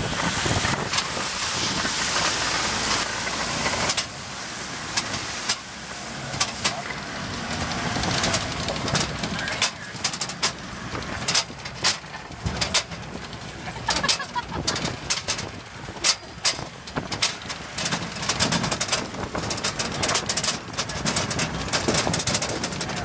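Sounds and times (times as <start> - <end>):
engine and tyre rumble: 0.0 - 23.0
vehicle frame rattling: 0.0 - 23.0.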